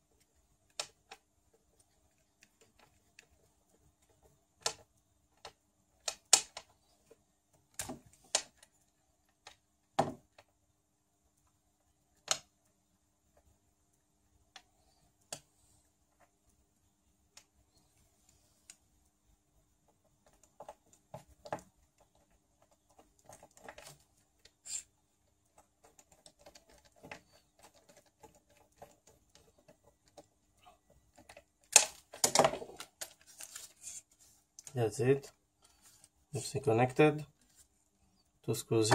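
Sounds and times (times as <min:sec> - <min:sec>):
small clicks and rattles of parts: 0:00.1 - 0:10.6, 0:19.8 - 0:36.5.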